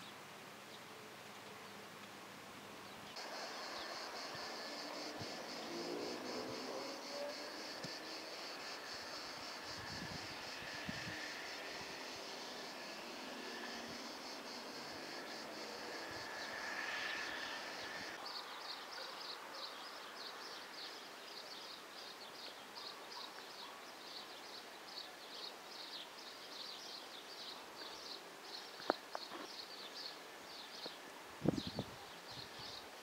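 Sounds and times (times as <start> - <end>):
steady hiss: 0.0 - 18.8
drone: 3.2 - 18.2.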